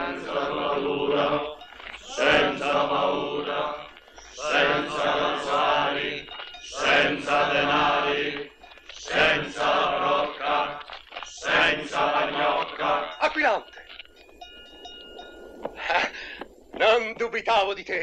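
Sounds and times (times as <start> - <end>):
group of voices chanting: 0.0 - 13.3.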